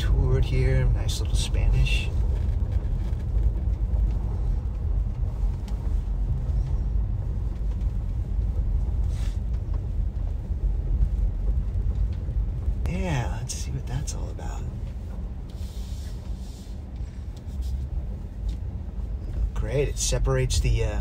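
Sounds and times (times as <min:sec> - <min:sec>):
car driving rumble from inside: 0:00.0 - 0:21.0.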